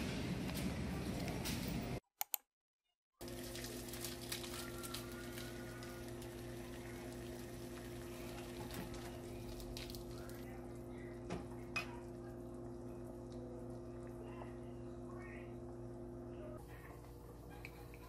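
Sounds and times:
water bubbling in a pot: 3.2 - 14.6
stove humming: 3.2 - 18.0.

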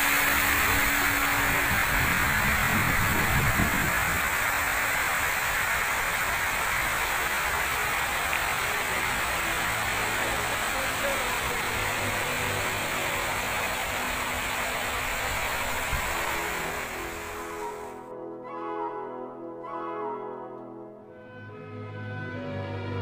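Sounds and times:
fountain water spray hissing: 0.0 - 18.1.

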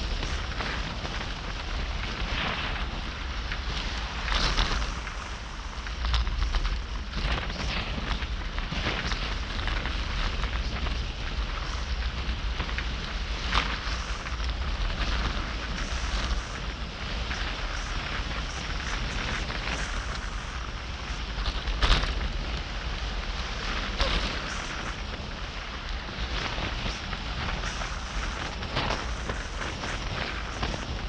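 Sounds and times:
wind rushing over microphone: 0.0 - 31.0.

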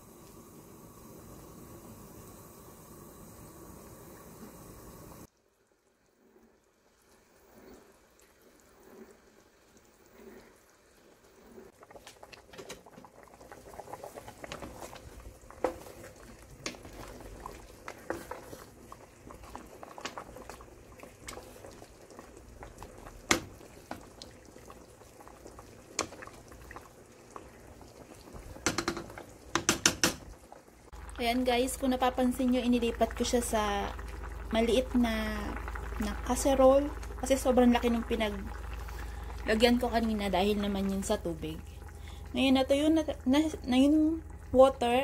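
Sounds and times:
liquid bubbling in a pot: 0.0 - 45.0
wooden spoon knocking pot: 28.6 - 30.3.

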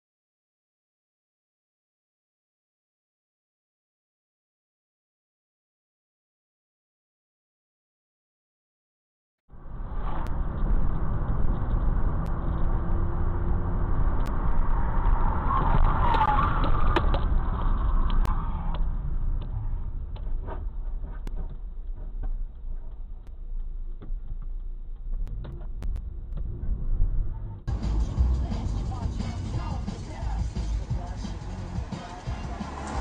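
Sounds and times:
car road and engine noise: 9.5 - 33.0.

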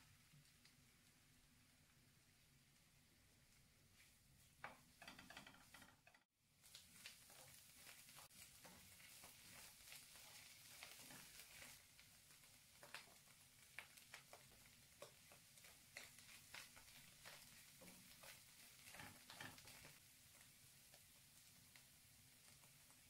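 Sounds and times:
light steady hiss: 0.0 - 23.0
spatula scraping frying pan: 4.7 - 13.3, 14.1 - 20.0.

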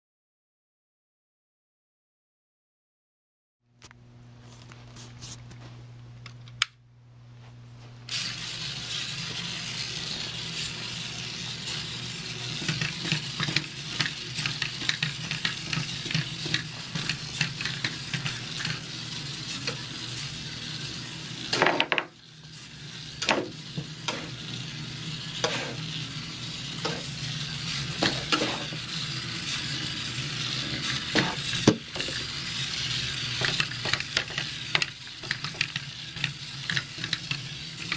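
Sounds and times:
robot wheels rattling whir: 8.1 - 21.6, 22.4 - 37.9.

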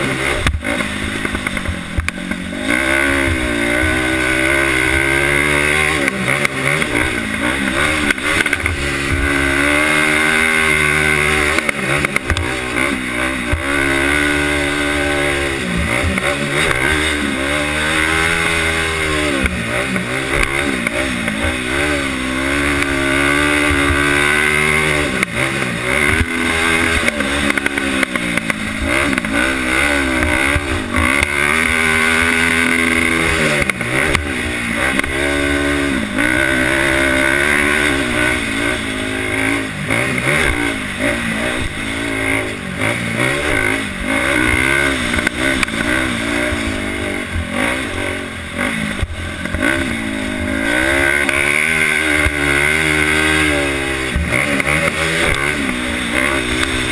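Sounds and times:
quad engine revving: 0.0 - 56.9.

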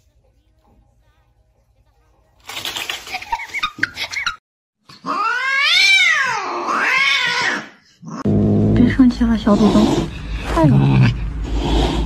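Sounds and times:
cat meowing loudly: 5.1 - 7.7.

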